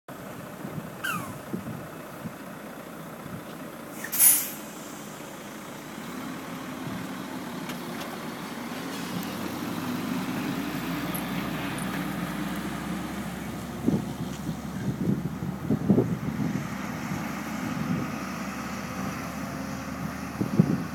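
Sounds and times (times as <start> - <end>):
truck air brake hiss: 3.9 - 5.4.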